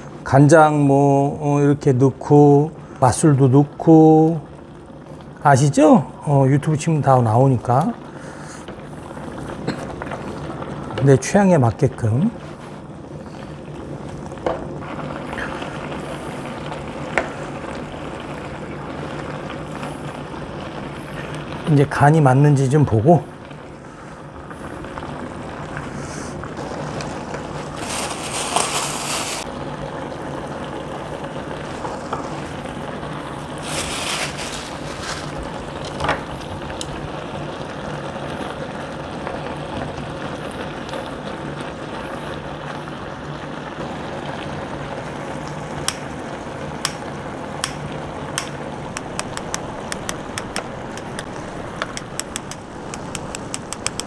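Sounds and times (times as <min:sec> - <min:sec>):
broth simmering and bubbling: 0:00.0 - 0:54.0
low steady hum: 0:45.0 - 0:54.0
wooden spoon stirring: 0:46.9 - 0:54.0.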